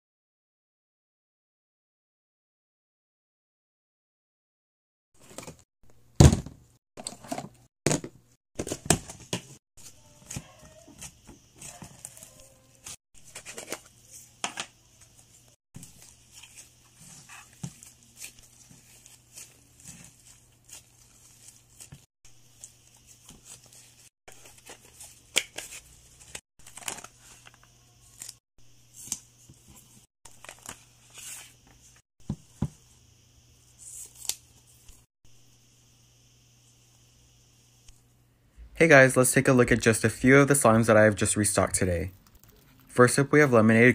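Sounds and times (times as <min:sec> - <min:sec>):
slime squelching and crackling: 0:15.8 - 0:25.8, 0:42.0 - 0:43.0.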